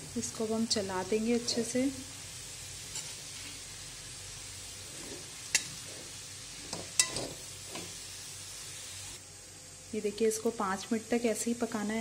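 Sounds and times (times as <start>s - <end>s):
carrots sizzling in a pan: 0.0s - 12.0s
steel spoon clinking against pan: 5.5s - 5.8s, 6.7s - 7.9s.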